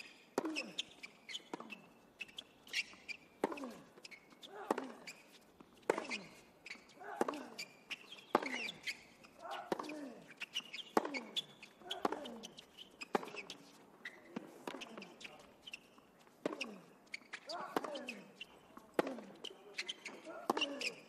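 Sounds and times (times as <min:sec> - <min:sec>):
racket striking tennis ball: 0:00.3 - 0:00.8, 0:02.7 - 0:05.2, 0:05.8 - 0:06.4, 0:07.1 - 0:13.8, 0:16.4 - 0:21.0.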